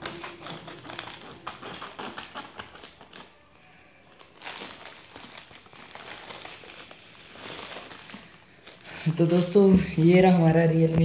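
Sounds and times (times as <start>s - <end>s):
scissors snipping plastic: 0.0s - 3.4s
plastic crinkling: 0.0s - 10.1s.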